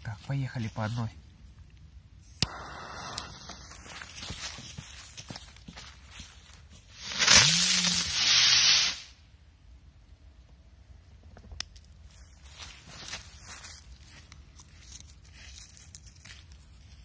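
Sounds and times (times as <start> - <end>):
firework whirring tone: 2.2 - 4.4, 6.9 - 9.1
spinner firework hissing: 2.2 - 4.4, 6.9 - 9.1.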